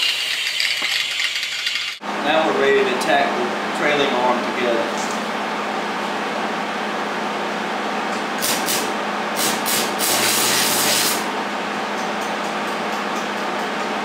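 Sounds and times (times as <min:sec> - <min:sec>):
welding arc crackling and sizzling: 0:08.4 - 0:11.2.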